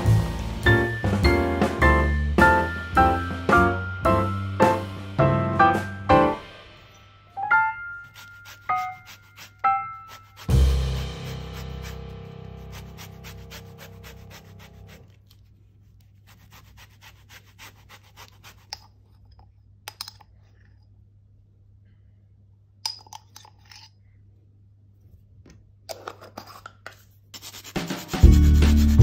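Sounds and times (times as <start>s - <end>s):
lemon scraping on metal grater: 8.2s - 15.2s.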